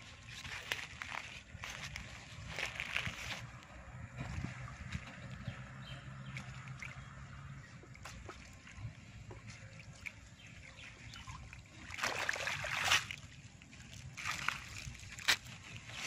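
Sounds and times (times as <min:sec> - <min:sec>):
wet fishing net hauled out: 0:00.0 - 0:05.4, 0:11.4 - 0:16.0
water trickling and dripping: 0:04.4 - 0:15.8.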